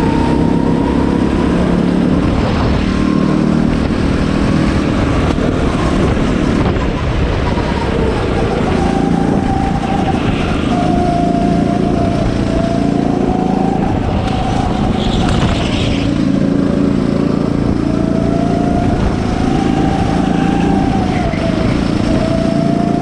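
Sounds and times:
go-kart engine running: 0.0s - 23.0s.

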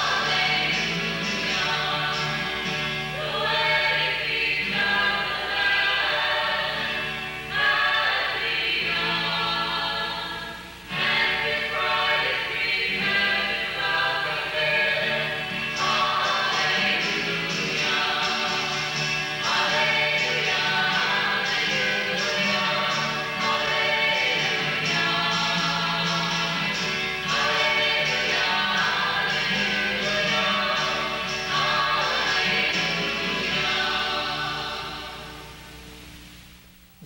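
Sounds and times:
group singing a hymn in harmony: 0.0s - 35.5s.

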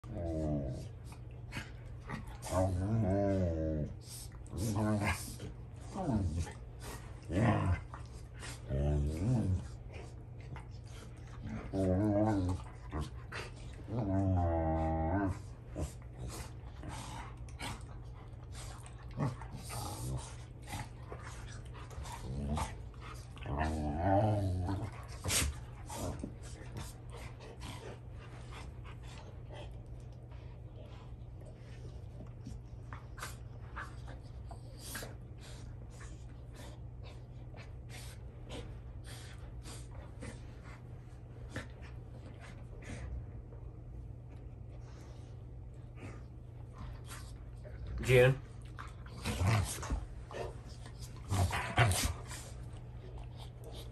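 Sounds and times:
dogs growling: 0.0s - 43.6s, 44.8s - 53.9s
dogs breathing through nose: 33.0s - 43.2s.

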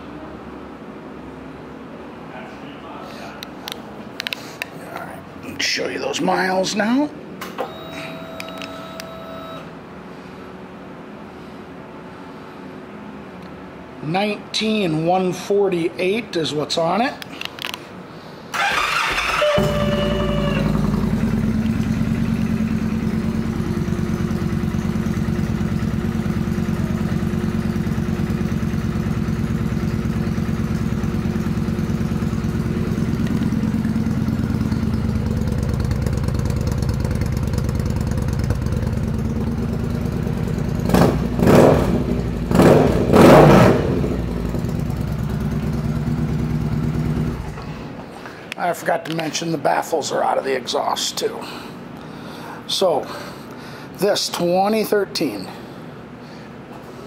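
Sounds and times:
starter motor whining: 18.6s - 22.0s
motorcycle engine idling: 18.6s - 43.1s, 43.8s - 47.6s
motorcycle engine revving: 18.6s - 47.6s.

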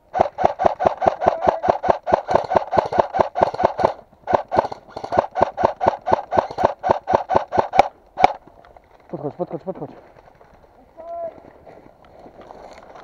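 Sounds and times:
rapid gunshot cracks: 0.1s - 8.4s.

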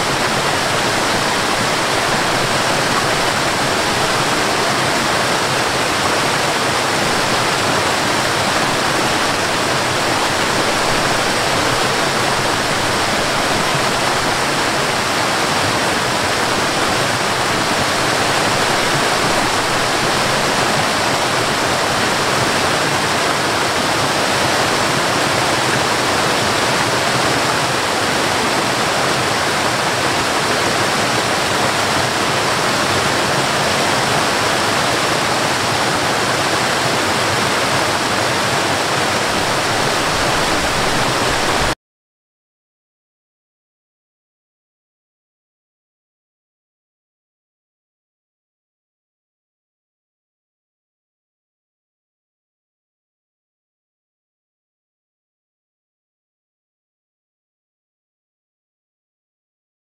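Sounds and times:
waterfall rushing over rocks: 0.0s - 41.8s.

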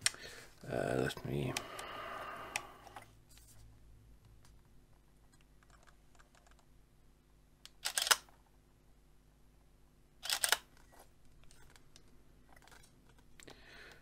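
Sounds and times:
camera shutter clatter: 7.8s - 8.3s, 10.2s - 10.7s.

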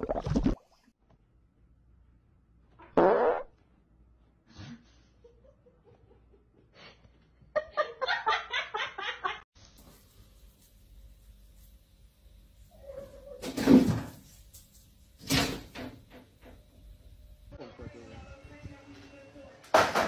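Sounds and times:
fart: 2.8s - 3.6s.

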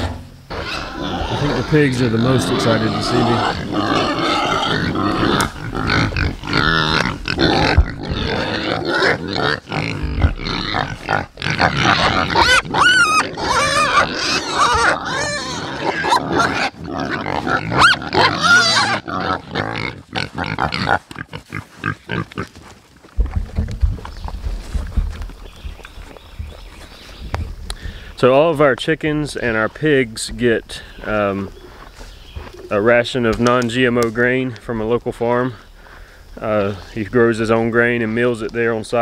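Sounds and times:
pigs grunting and squealing: 0.0s - 26.7s.

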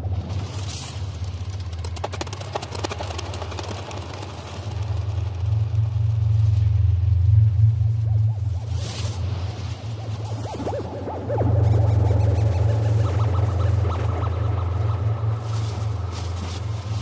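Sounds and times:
low droning rumble: 4.0s - 17.0s.

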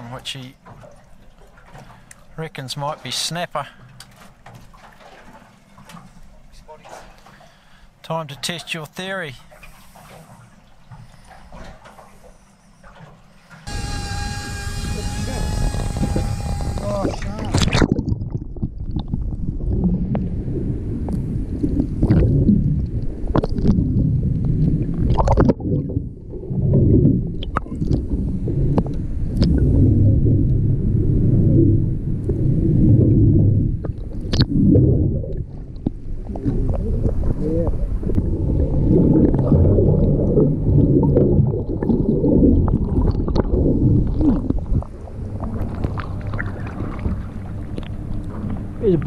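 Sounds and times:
underwater rumble and gurgle: 9.4s - 49.0s
small underwater clicks: 15.3s - 19.4s, 21.0s - 23.8s, 27.3s - 28.1s, 28.7s - 29.6s, 42.6s - 48.6s.

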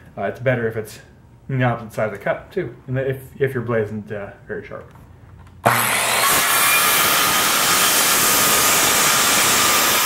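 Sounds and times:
circular saw cutting wood: 5.6s - 10.0s.

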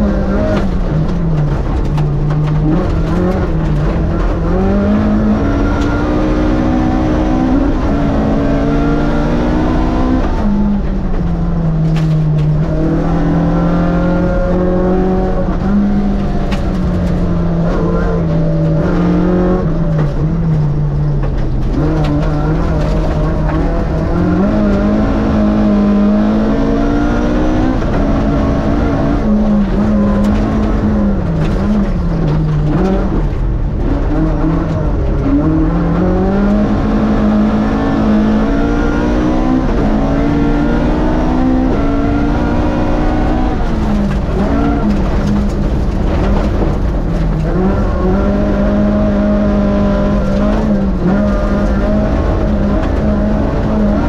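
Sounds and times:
rally car engine revving: 0.0s - 54.0s.

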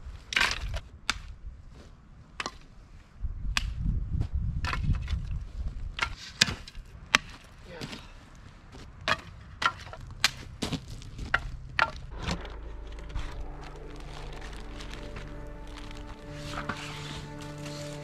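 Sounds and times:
soft background music: 12.1s - 18.0s.

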